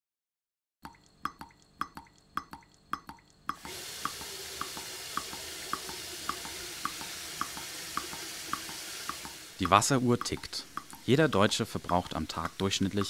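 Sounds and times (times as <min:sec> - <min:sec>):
clock ticking: 0:00.8 - 0:13.0
water running from a tap: 0:03.6 - 0:13.0.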